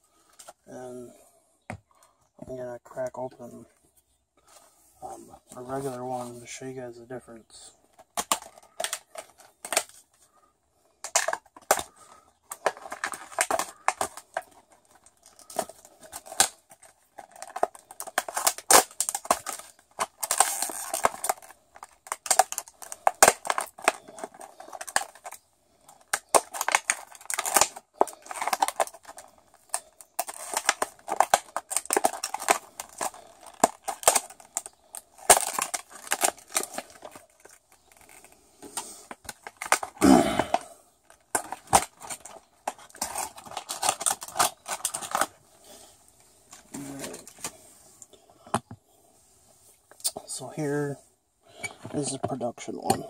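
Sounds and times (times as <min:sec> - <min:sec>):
plastic packaging crinkling: 0:07.9 - 0:47.7.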